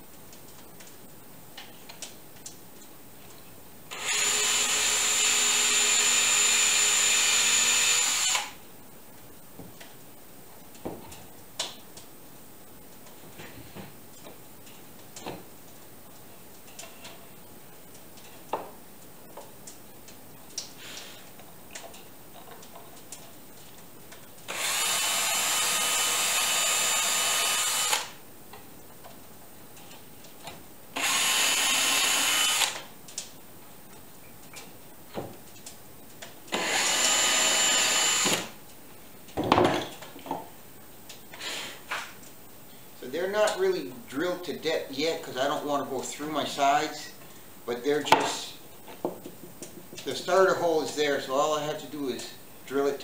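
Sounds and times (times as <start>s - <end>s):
power drill boring into wood: 3.9s - 8.6s, 24.5s - 28.2s, 31.0s - 32.8s, 36.5s - 38.5s.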